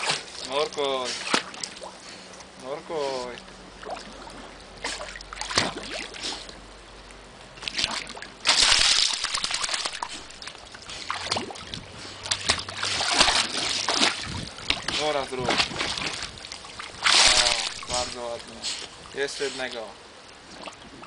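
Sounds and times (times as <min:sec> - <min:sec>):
dog splashing in water: 0:00.0 - 0:01.9, 0:03.8 - 0:06.6, 0:07.6 - 0:18.9.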